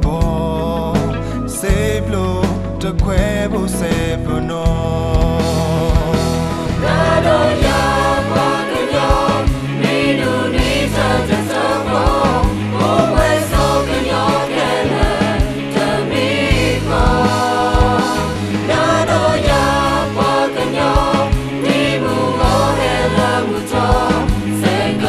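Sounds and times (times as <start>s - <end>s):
band with bass and drums: 0.0s - 25.0s
group singing: 5.2s - 25.0s.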